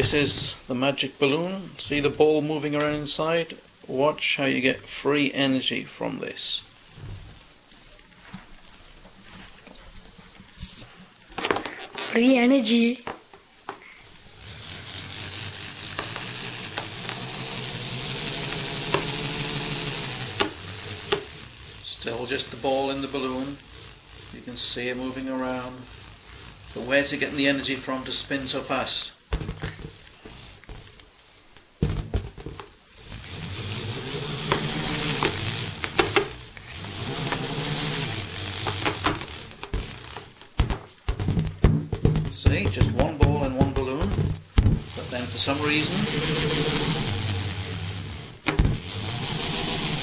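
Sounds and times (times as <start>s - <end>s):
ball whirring inside balloon: 0.0s - 12.3s, 13.0s - 50.0s
sharp ticks: 15.5s - 31.1s
thump: 31.8s - 32.7s, 40.6s - 43.0s, 44.0s - 44.8s, 48.5s - 48.8s.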